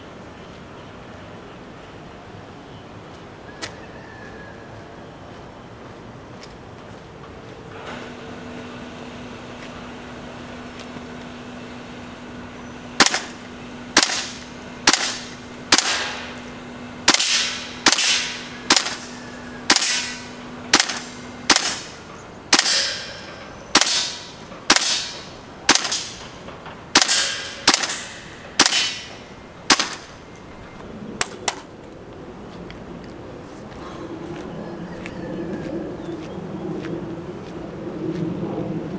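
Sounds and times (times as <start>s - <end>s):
airsoft rifle shots: 13.0s - 13.4s, 14.0s - 16.4s, 17.0s - 26.2s, 26.9s - 30.1s.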